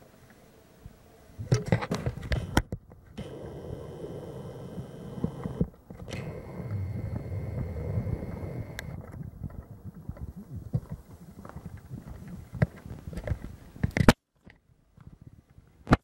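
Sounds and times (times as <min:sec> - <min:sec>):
low rumble: 0:03.2 - 0:12.5.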